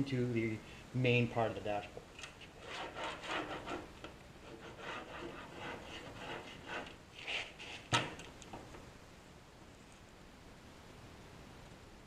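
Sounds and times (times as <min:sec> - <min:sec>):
pen scratching on cardboard: 0:02.6 - 0:08.0.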